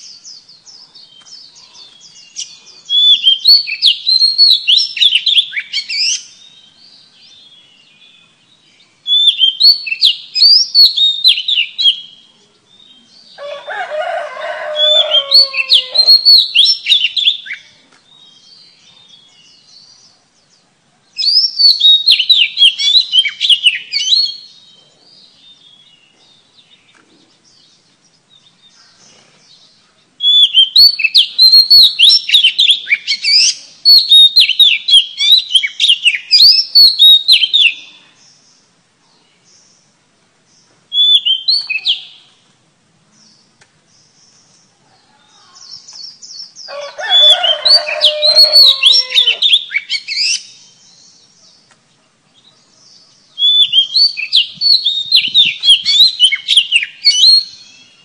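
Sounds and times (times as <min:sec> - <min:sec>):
bird singing whistled notes: 0:00.0 - 0:13.4, 0:14.8 - 0:20.1, 0:21.2 - 0:28.9, 0:29.6 - 0:38.6, 0:40.9 - 0:42.4, 0:45.6 - 0:51.7, 0:52.3 - 0:58.0.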